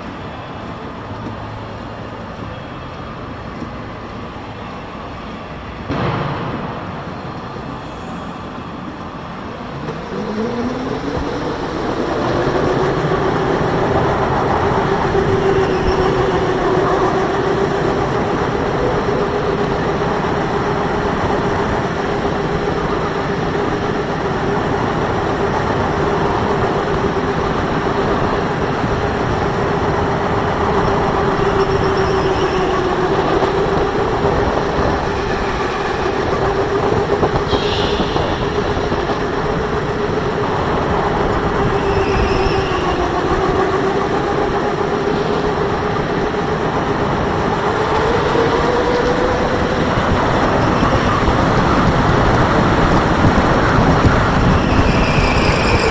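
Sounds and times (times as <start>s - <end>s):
rushing wind: 3.1s - 55.9s.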